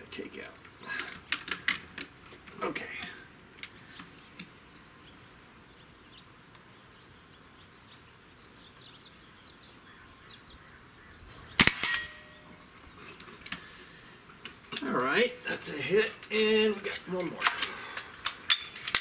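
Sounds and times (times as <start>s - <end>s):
air rifle shot: 11.5s - 12.4s.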